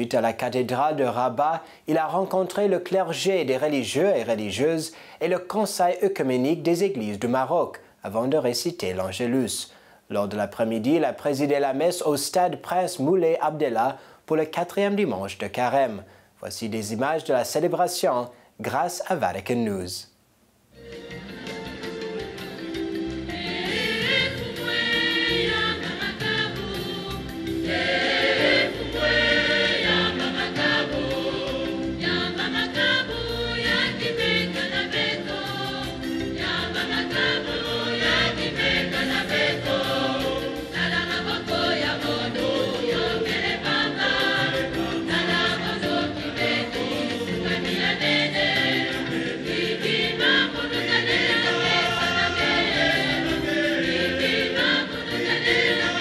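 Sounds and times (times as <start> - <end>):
choir singing: 21.0 - 56.0.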